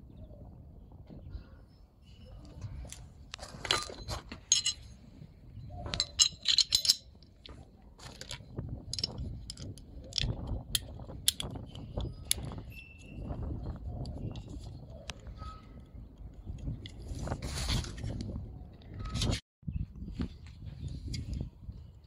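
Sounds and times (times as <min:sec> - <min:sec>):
metallic clicks of gun parts: 0:05.9 - 0:07.3, 0:08.1 - 0:12.6.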